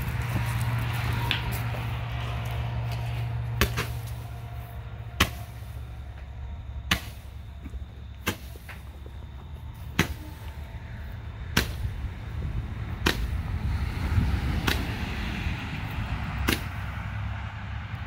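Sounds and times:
firework pops: 0:08.2 - 0:08.9.

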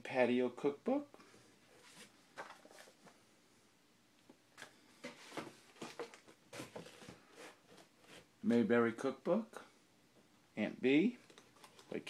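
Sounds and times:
book pages rustling: 0:01.8 - 0:03.2, 0:04.6 - 0:08.3.

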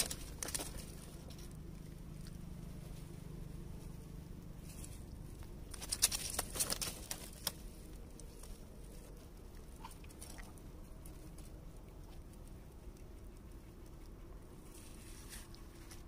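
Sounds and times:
fish flapping against rocks: 0:00.0 - 0:01.4, 0:05.6 - 0:08.3.

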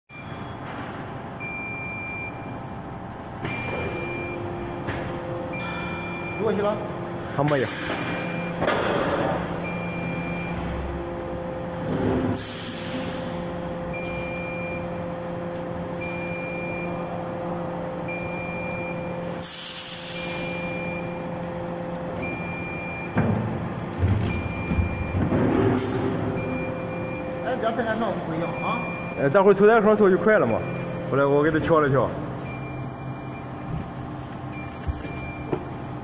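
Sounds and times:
hydraulic press hum: 0:00.1 - 0:36.0
air hissing: 0:12.3 - 0:13.3, 0:19.4 - 0:20.5.

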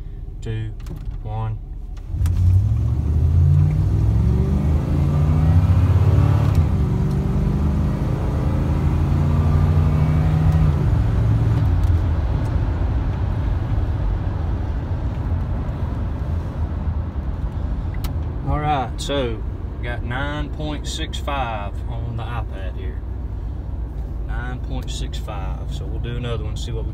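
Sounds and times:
pickup truck engine accelerating: 0:02.1 - 0:18.2.

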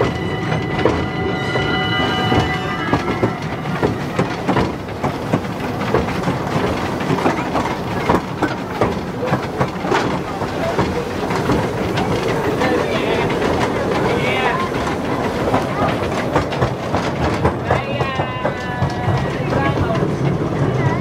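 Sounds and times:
high steady tone: 0:00.0 - 0:05.4
train wheels clattering over rails: 0:00.0 - 0:21.0.

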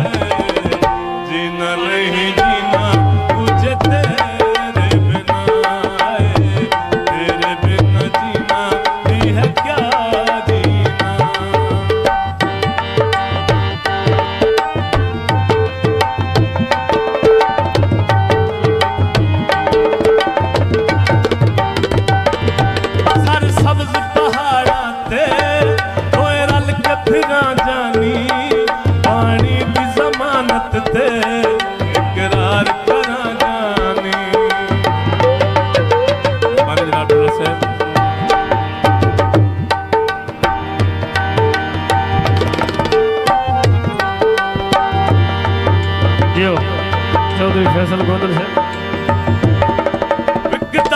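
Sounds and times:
harmonium held notes: 0:00.0 - 0:50.9
fast hand-drum strokes: 0:06.2 - 0:24.7, 0:34.6 - 0:45.2, 0:46.7 - 0:50.9
wavering melody line: 0:09.4 - 0:50.9
tabla drum strokes: 0:33.8 - 0:50.9
held drone notes: 0:34.6 - 0:50.0.

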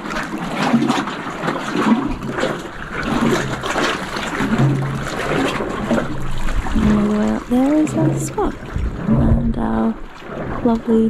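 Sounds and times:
small waves sloshing under rocks: 0:00.0 - 0:11.0.

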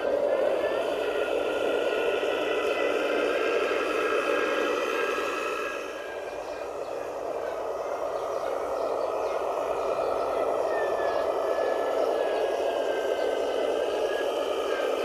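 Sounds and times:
rc truck mechanical running: 0:00.0 - 0:15.0.

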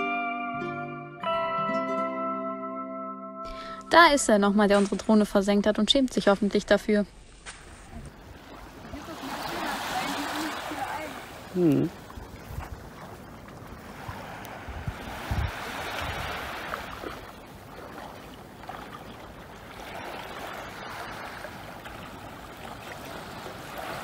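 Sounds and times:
small sea waves washing: 0:07.4 - 0:24.0.

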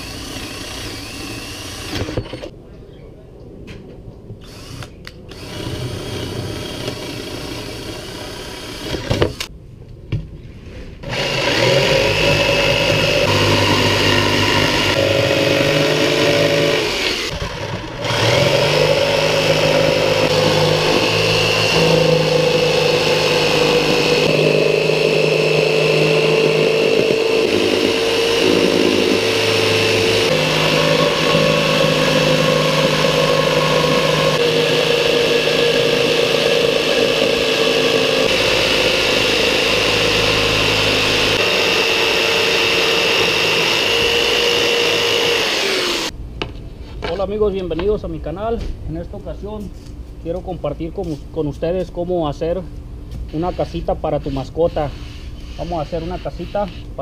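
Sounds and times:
power drill boring through plywood: 0:00.0 - 0:02.5, 0:04.4 - 0:09.5, 0:11.0 - 0:46.1
jigsaw cutting plywood: 0:05.3 - 0:09.5, 0:11.0 - 0:46.1.

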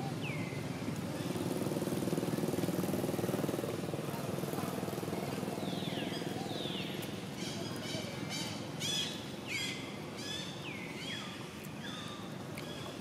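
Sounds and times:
small engine running: 0:01.2 - 0:06.1.

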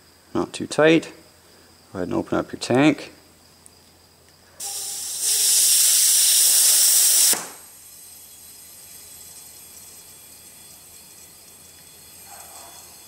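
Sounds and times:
compressed air hissing: 0:04.6 - 0:09.4.

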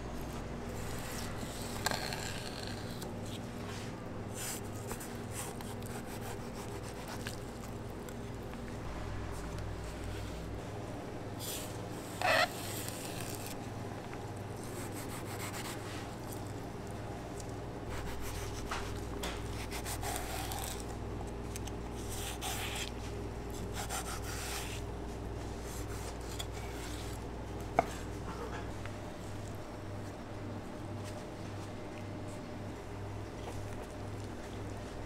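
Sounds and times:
steady low hum: 0:00.0 - 0:35.0
knife scraping cutting board: 0:00.8 - 0:03.1.

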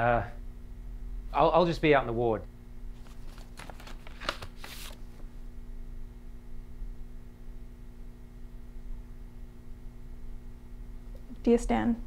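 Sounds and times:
steady low hum: 0:00.0 - 0:12.0
paper rustling and crackling: 0:03.0 - 0:05.2.

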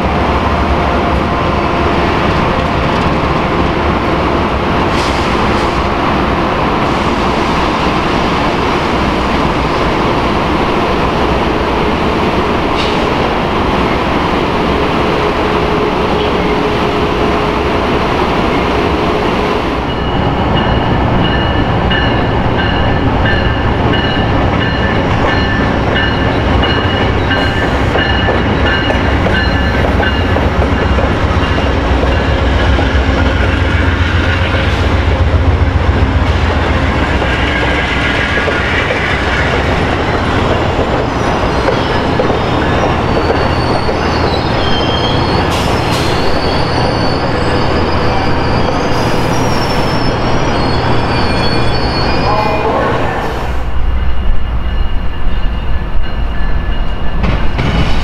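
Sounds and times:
train wheels rumbling on rail: 0:00.0 - 0:58.0
high wheel squeals: 0:41.1 - 0:52.8.

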